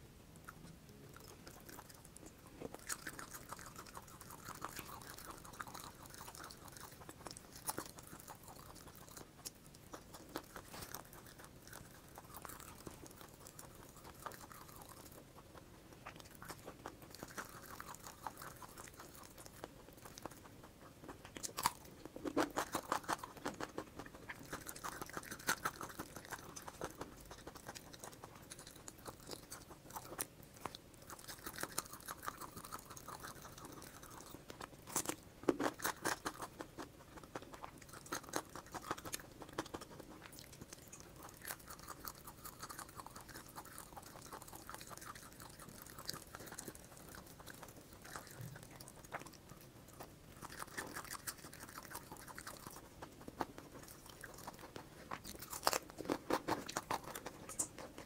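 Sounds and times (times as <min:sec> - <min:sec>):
person chewing and crunching: 0:00.0 - 0:58.0
wet mouth clicks: 0:50.0 - 0:58.0.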